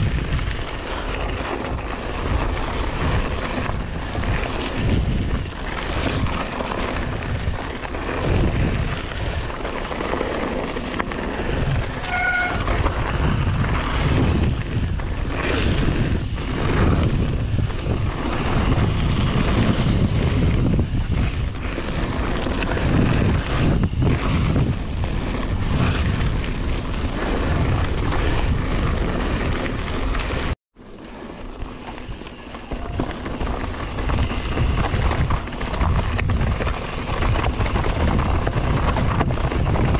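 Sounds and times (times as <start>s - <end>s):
wind buffeting microphone: 0.0s - 30.6s, 31.6s - 39.9s
bike tyres rattling over dirt: 0.0s - 39.9s
brief squeak: 12.0s - 12.8s.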